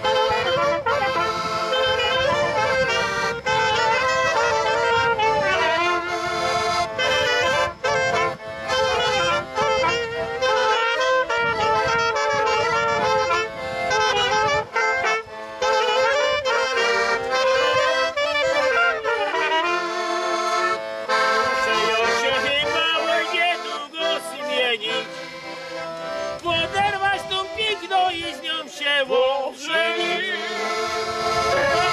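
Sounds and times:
pulsing low accompaniment: 0.0s - 22.6s
trumpet: 0.0s - 28.9s, 29.6s - 31.9s
accordion folk tune: 0.0s - 31.9s.

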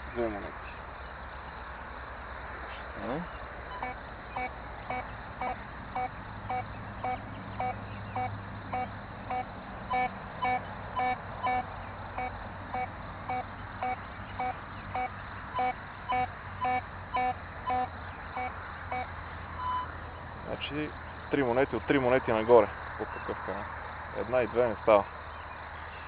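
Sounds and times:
metal detector beeping: 3.7s - 19.9s.

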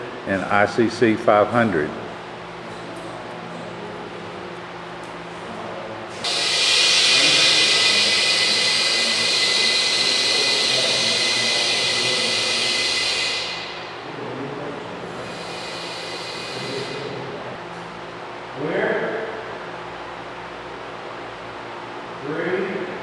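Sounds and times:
compressed air hissing: 6.1s - 14.0s, 15.0s - 17.4s.

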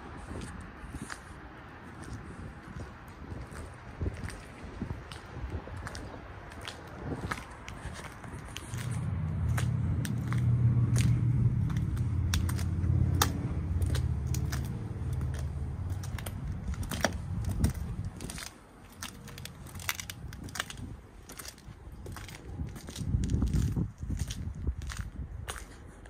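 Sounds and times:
footsteps on brick paving: 0.0s - 26.0s
clicks and scuffs: 0.1s - 26.0s.

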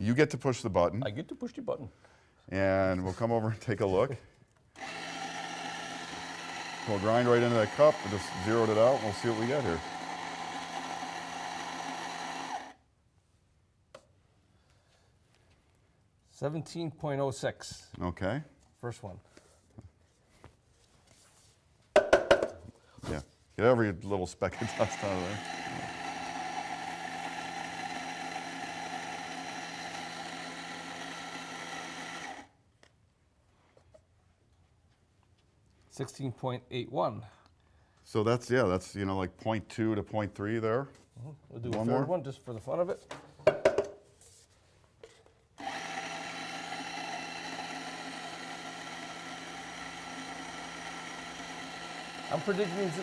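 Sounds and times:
coffee grinder motor running: 4.8s - 12.8s, 24.5s - 32.5s, 45.6s - 53.0s.

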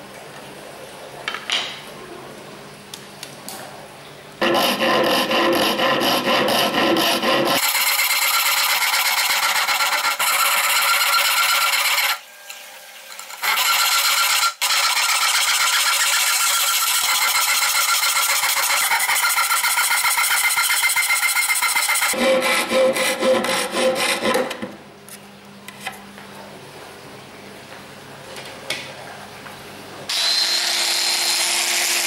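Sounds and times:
handsaw cutting wood: 4.4s - 12.2s, 13.1s - 24.6s, 30.1s - 32.0s.

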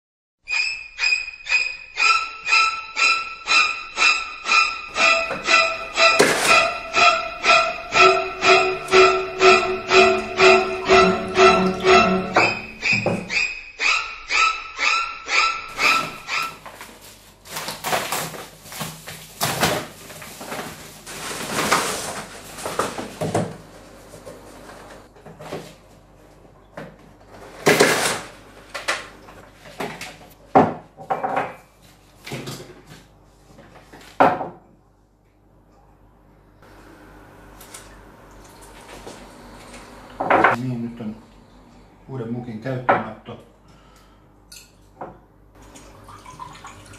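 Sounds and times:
cardboard and paper rustling: 16.5s - 23.5s.

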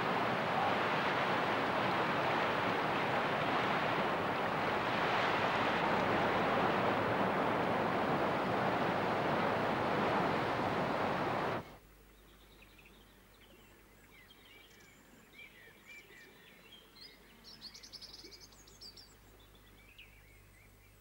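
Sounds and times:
river rapids rushing over rocks: 0.0s - 11.6s.

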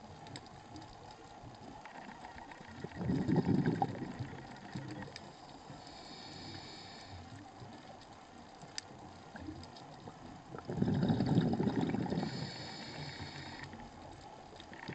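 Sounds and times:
exhaled bubbles burbling: 2.4s - 5.2s, 10.4s - 12.6s, 14.7s - 14.9s
hissing regulator inhale: 5.7s - 7.4s, 10.7s - 13.8s.

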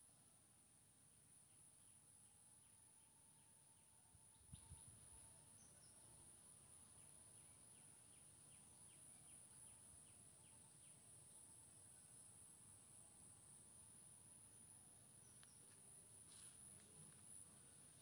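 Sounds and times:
faint high hiss: 4.9s - 18.0s.

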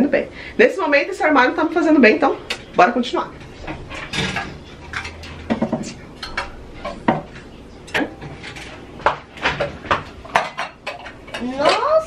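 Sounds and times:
cups and dishes clinking: 3.5s - 12.0s.

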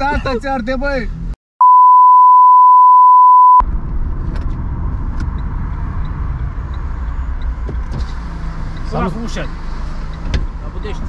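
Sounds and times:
loud single-pitch beep: 1.6s - 3.6s.

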